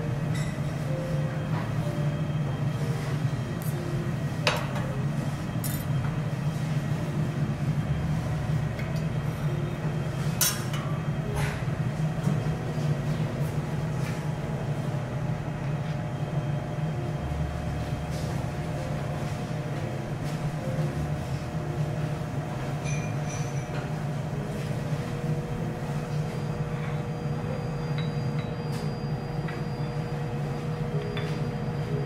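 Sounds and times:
low restaurant hum: 0:00.0 - 0:32.0
tableware clinking: 0:05.6 - 0:06.0, 0:22.8 - 0:23.9.

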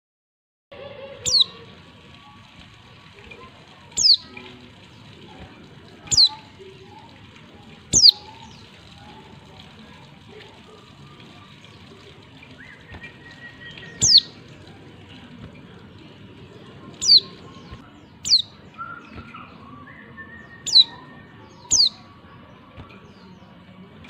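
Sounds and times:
bird calls sweeping down: 0:01.2 - 0:01.5, 0:12.8 - 0:14.3.

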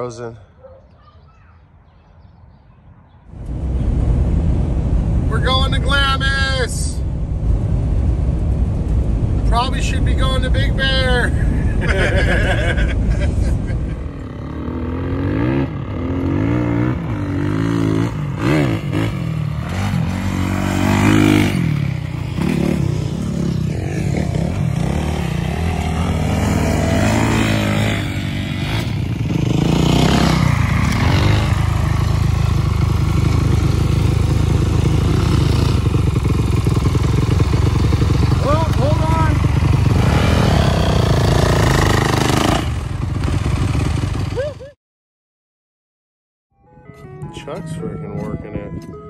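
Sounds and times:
dirt bike engines revving: 0:09.3 - 0:44.6
nearby bike engine steady: 0:13.9 - 0:44.7.

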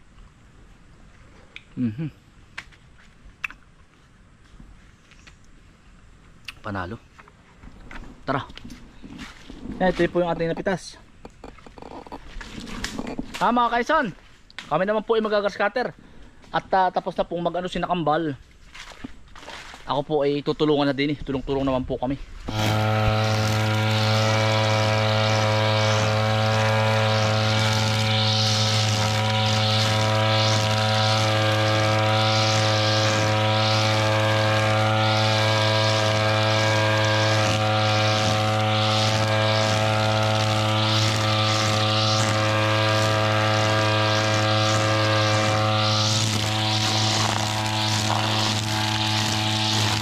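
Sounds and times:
brush cutter engine buzzing: 0:22.5 - 0:50.0
rhythmic swish: 0:22.6 - 0:50.0.

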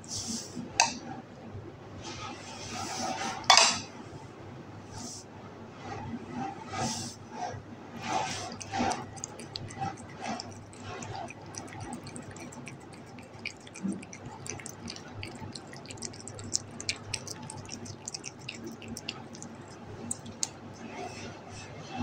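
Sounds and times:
cat chewing and licking: 0:08.0 - 0:21.0.

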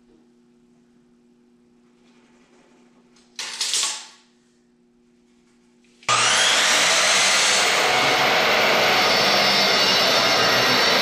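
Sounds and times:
miter saw cutting wood: 0:06.1 - 0:11.0.

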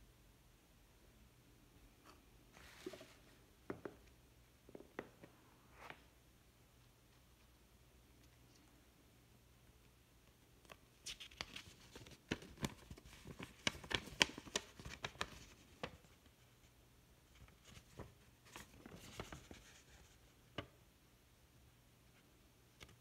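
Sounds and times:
paper crinkling: 0:11.0 - 0:16.2, 0:17.4 - 0:20.2.

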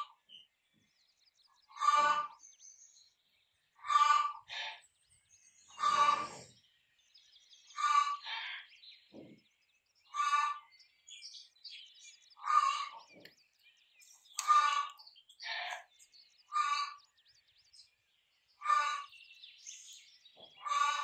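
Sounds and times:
small birds chirping faintly: 0:00.0 - 0:21.0
rooster giving harsh calls: 0:03.9 - 0:04.4, 0:05.8 - 0:06.4.

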